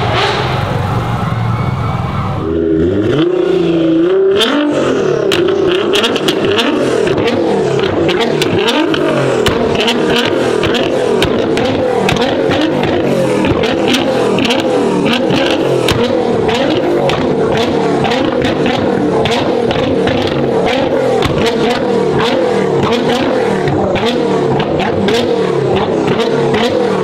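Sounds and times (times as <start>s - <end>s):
car engine revving: 0.0s - 27.0s
exhaust cracks and pops: 5.3s - 26.8s.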